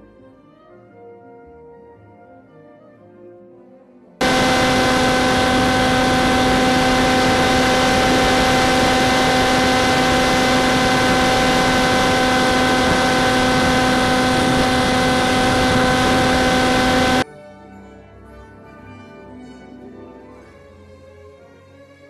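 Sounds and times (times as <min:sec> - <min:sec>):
electric motor and propeller hum: 0:04.2 - 0:17.2.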